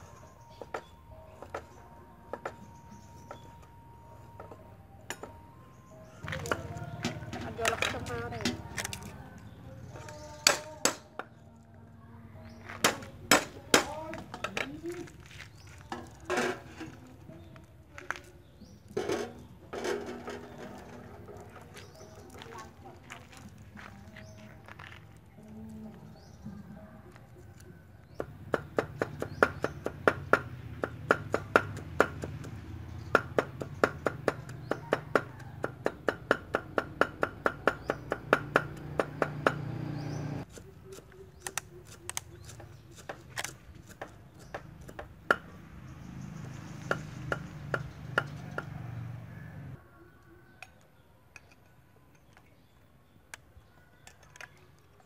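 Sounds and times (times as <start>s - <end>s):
cleaver chopping on wooden block: 28.2s - 39.7s.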